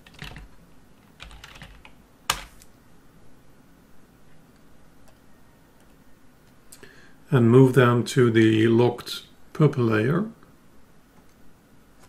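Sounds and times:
typing on computer keyboard: 0.0 - 2.5.

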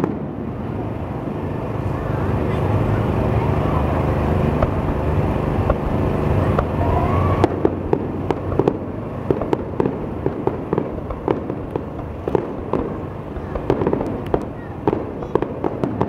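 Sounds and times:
distant fireworks bangs and pops: 0.0 - 16.0
low background rumble: 0.0 - 16.0.

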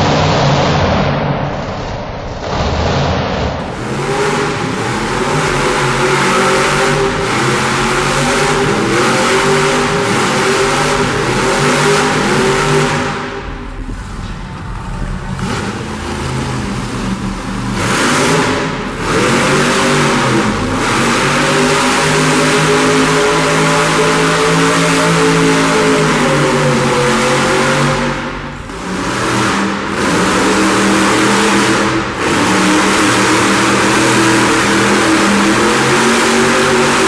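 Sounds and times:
toy truck motor revving: 28.8 - 37.0.

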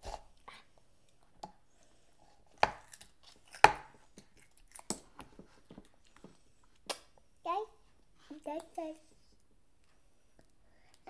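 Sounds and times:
children crunching raw vegetables: 2.7 - 5.3.

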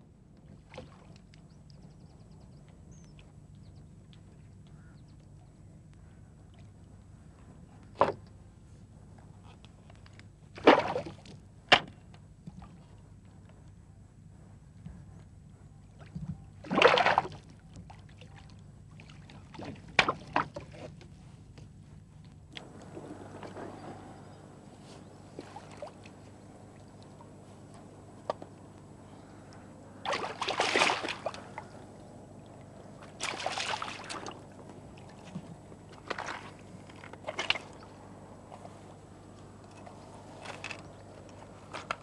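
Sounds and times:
fish splashing and thrashing: 16.6 - 17.4, 25.3 - 28.5, 30.0 - 38.7
water sloshing: 16.6 - 20.9, 22.6 - 42.0.

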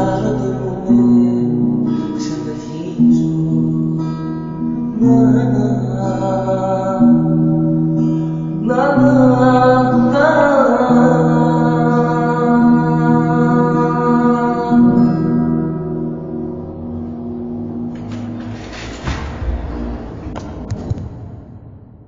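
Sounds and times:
person singing: 0.0 - 15.6
classical guitar playing: 0.0 - 20.7.

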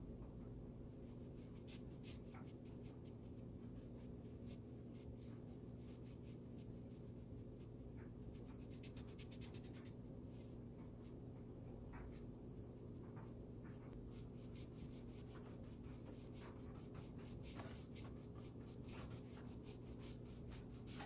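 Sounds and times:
paintbrush scratching on wood: 1.1 - 10.0, 13.9 - 21.0.

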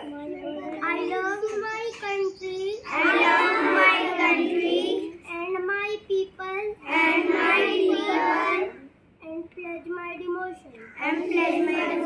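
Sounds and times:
children chanting in unison: 2.8 - 5.1, 6.8 - 8.8, 11.0 - 12.0.

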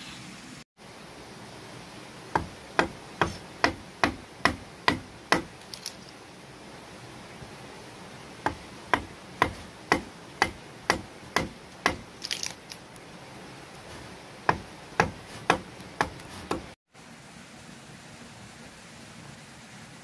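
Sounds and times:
hand tool striking wood: 2.4 - 5.8, 8.4 - 12.4, 14.5 - 16.8.

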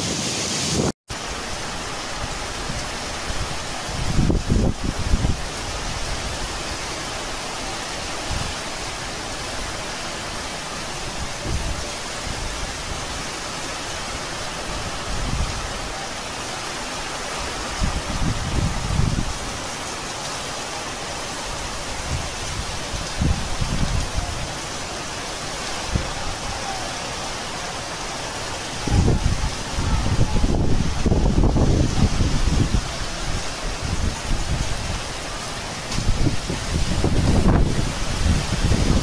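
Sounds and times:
heavy rain pouring: 0.0 - 39.0
wind buffeting microphone: 2.6 - 6.5, 17.7 - 19.6, 22.0 - 24.5, 28.8 - 35.2, 35.9 - 39.0.

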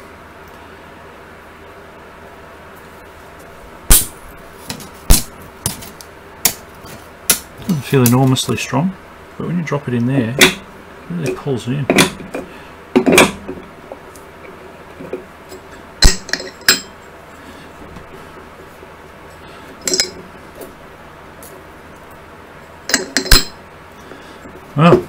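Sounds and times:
fan motor parts clicking: 3.9 - 8.6, 9.9 - 17.1, 19.3 - 20.8, 22.8 - 23.6.

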